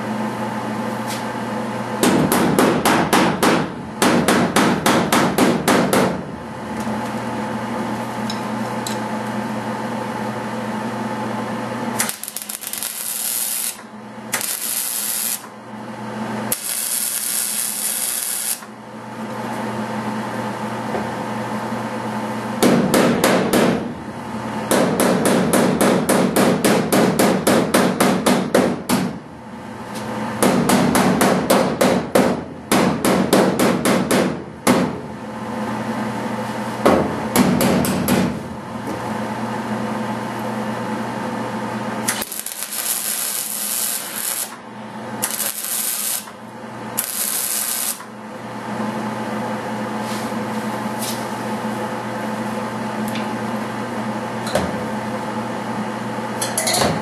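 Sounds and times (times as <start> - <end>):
welding hiss: 12.0 - 15.5, 16.5 - 18.7, 42.1 - 44.6, 45.2 - 46.4, 47.0 - 48.1.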